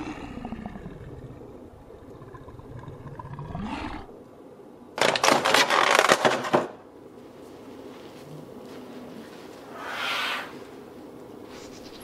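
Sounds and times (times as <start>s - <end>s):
lion roar: 0.0s - 4.2s.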